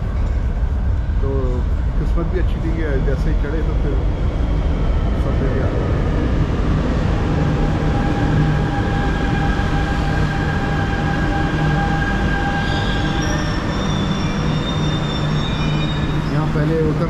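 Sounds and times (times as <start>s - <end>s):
metro train rumbling with whine: 0.0s - 17.0s
high brake squealing: 8.2s - 17.0s.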